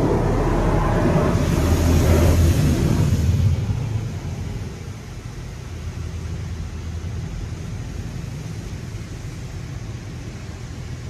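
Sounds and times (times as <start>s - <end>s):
car wash rumble: 0.0s - 11.0s
even hiss of car wash: 0.0s - 11.0s.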